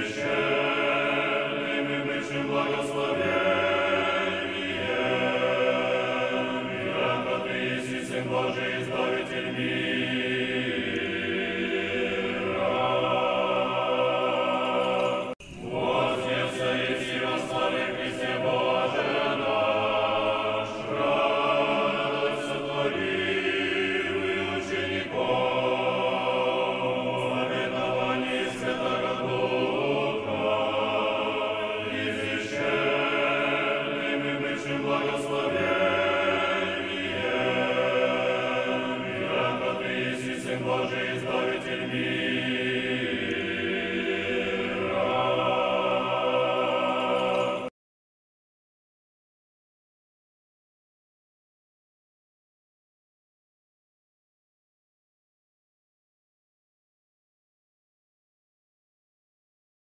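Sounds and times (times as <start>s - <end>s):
choir singing a chant: 0.0s - 47.7s.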